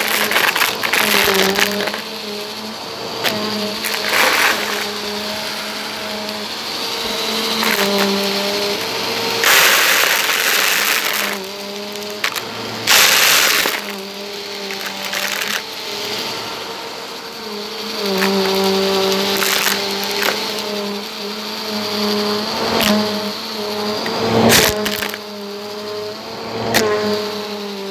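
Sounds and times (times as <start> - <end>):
plastic beads clicking and rattling: 0.0 - 6.5, 7.1 - 16.3, 17.9 - 21.1, 24.4 - 25.3
vacuum cleaner motor hum: 0.0 - 27.9.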